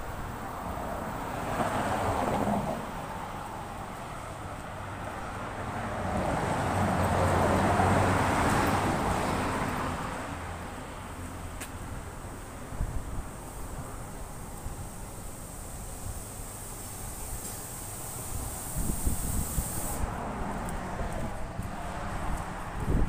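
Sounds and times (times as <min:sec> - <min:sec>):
vehicle going by: 0:00.0 - 0:11.6, 0:20.0 - 0:23.0
street traffic passing: 0:00.0 - 0:23.0.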